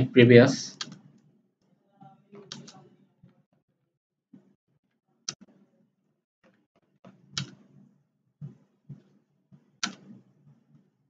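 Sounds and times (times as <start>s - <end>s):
keyboard keys clicking: 2.5s - 2.8s, 7.4s - 7.6s, 9.8s - 10.2s.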